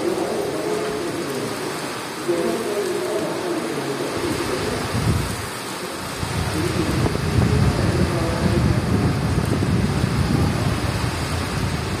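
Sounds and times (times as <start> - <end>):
steady rain hiss: 0.0 - 12.0
wind buffeting microphone: 4.3 - 12.0.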